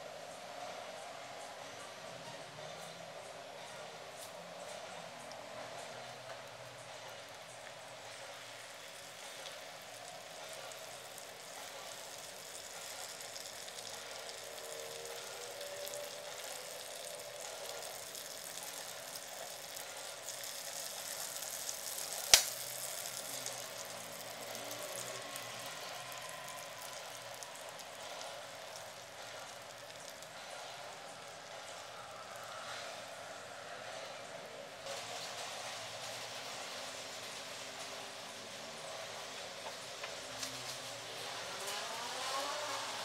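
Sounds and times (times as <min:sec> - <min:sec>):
butter sizzling in a frying pan: 0:07.5 - 0:32.6.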